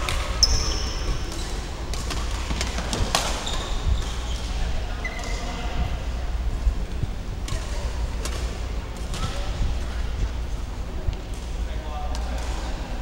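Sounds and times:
shoes squeaking on court floor: 0.0 - 5.7
steady low hum: 0.0 - 13.0.

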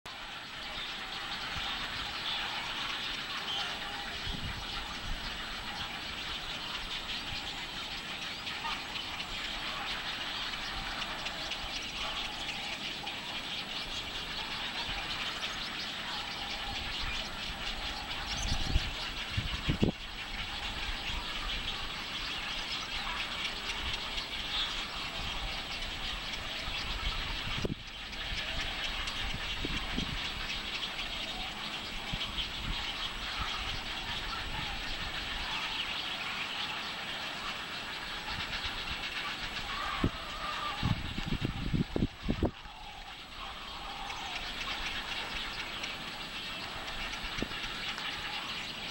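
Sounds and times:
birds chattering: 0.1 - 48.9
wind rumble on microphone: 4.0 - 8.0, 16.5 - 35.5, 38.2 - 44.4.

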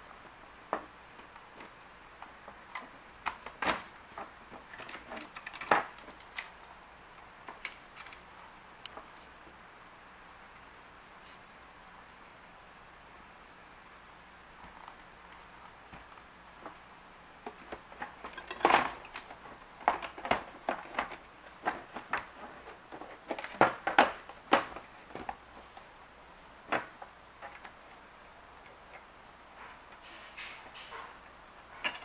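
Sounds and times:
plastic parts clicking and knocking: 0.7 - 6.6, 17.4 - 25.4.

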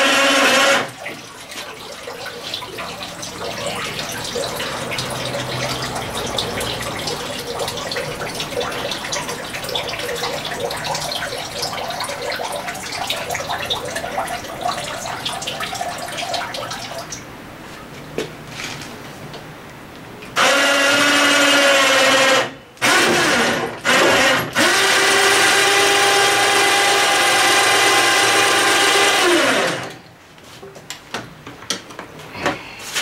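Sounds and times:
electric power tool whining: 0.0 - 0.9, 20.4 - 30.0.

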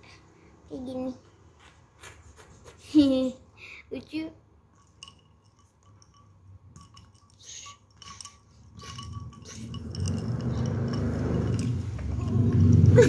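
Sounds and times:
plastic toy tapping glass bowl: 4.8 - 13.0.

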